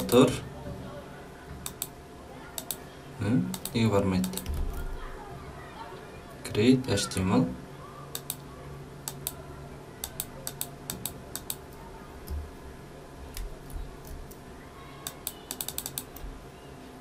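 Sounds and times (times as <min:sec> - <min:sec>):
computer keyboard keys clicking: 0:01.6 - 0:01.9, 0:03.5 - 0:04.8, 0:08.1 - 0:08.4, 0:10.0 - 0:11.7, 0:15.0 - 0:16.2.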